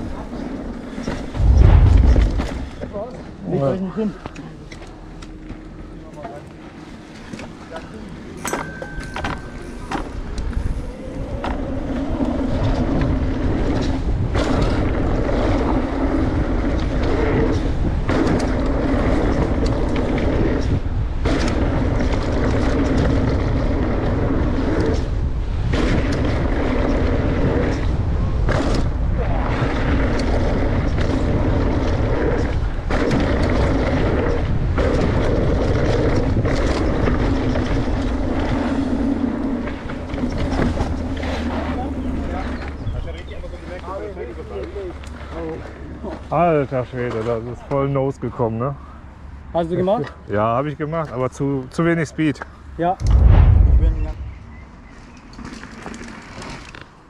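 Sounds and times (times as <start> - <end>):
rushing wind: 0.0 - 3.7, 9.0 - 43.5, 52.6 - 55.7
bike tyres rolling on dirt: 9.4 - 47.4.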